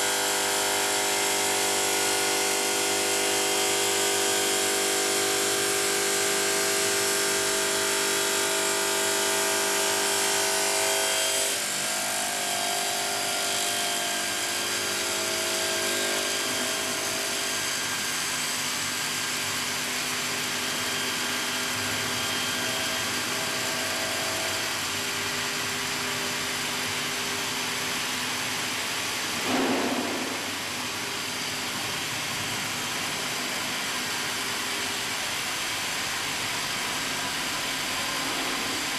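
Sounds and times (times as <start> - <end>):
stone saw machine whine: 0.0 - 29.6.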